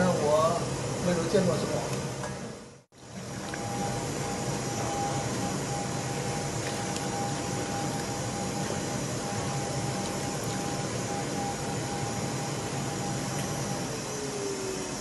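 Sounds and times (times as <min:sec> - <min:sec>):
faint steady whine: 0:00.0 - 0:15.0
liquid pouring into bowls: 0:03.0 - 0:05.5, 0:06.1 - 0:11.8.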